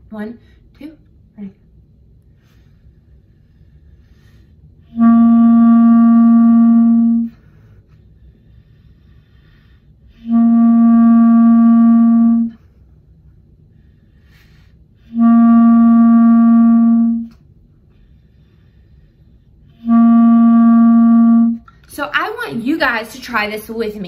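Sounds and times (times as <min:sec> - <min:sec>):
clarinet long tones: 0:04.9 - 0:07.5, 0:10.1 - 0:12.6, 0:15.0 - 0:17.4, 0:19.8 - 0:21.7.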